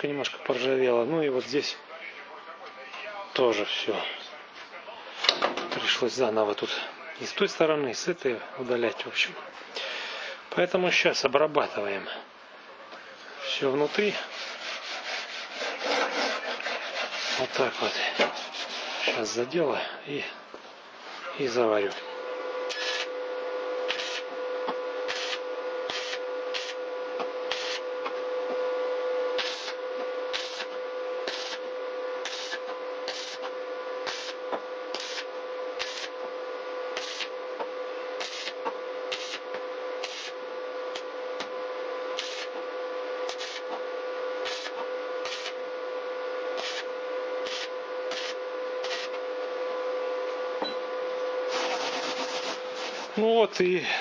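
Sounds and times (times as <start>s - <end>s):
welder hum: 20.6s - 53.9s
welding arc crackling: 22.7s - 23.1s, 23.8s - 24.3s, 25.0s - 26.8s, 27.4s - 27.9s, 29.4s - 36.2s, 36.9s - 37.4s, 38.2s - 41.1s, 42.1s - 42.6s, 43.2s - 43.7s, 44.4s - 45.6s, 46.6s - 49.2s.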